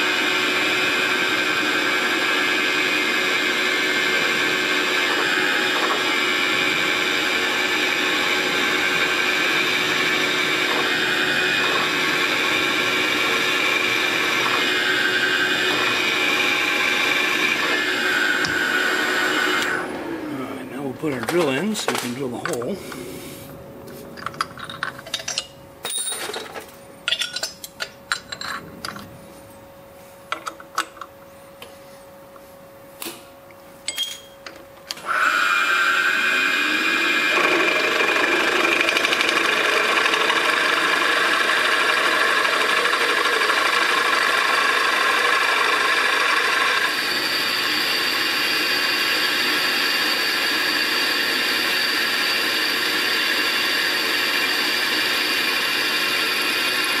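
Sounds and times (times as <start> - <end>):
drill bit cutting into metal: 4.2 - 19.8, 35.0 - 57.0.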